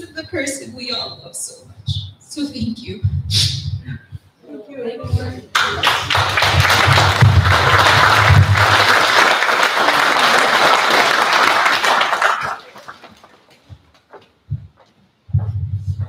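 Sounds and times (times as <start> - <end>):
audience applauding: 5.5 - 13.7.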